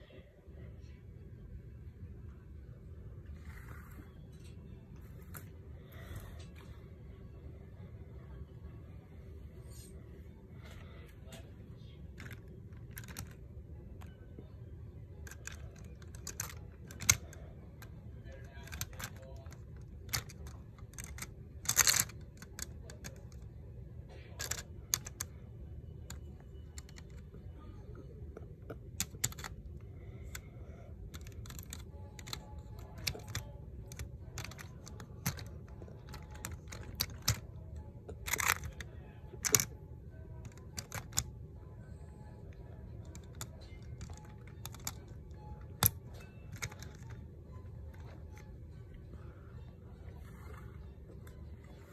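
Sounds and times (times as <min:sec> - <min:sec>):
low background hum: 0:00.0 - 0:51.9
plastic bricks clicking: 0:12.2 - 0:13.4, 0:15.2 - 0:17.4, 0:18.4 - 0:23.5, 0:24.4 - 0:25.3, 0:28.8 - 0:29.6, 0:31.1 - 0:39.7, 0:40.4 - 0:41.3, 0:43.0 - 0:47.2.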